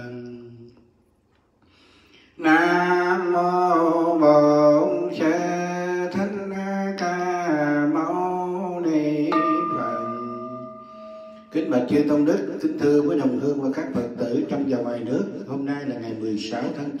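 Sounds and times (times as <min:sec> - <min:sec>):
monk chanting into microphone: 0:00.0 - 0:00.7, 0:02.4 - 0:10.8, 0:11.4 - 0:17.0
bell ringing: 0:09.2 - 0:12.8.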